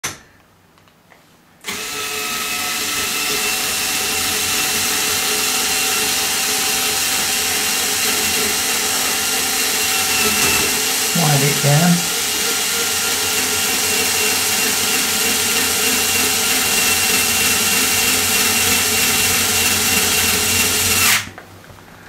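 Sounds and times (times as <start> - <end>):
cordless drill running: 1.6 - 21.3.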